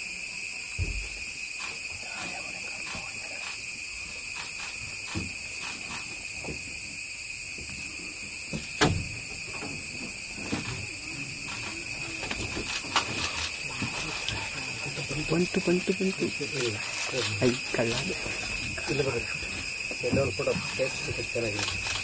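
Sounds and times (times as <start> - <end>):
forest insects chorus: 0.0 - 22.0.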